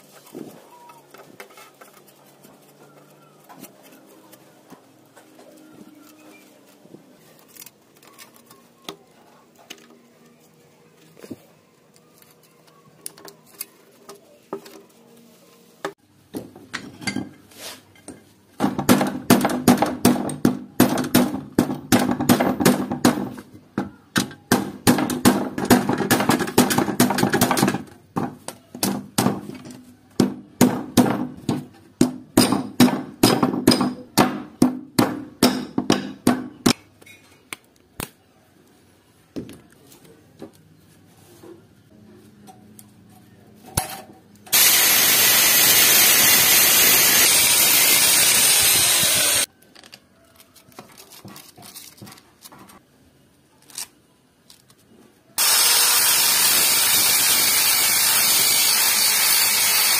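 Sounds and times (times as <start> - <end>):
hammer striking steel punch: 32.4 - 36.8.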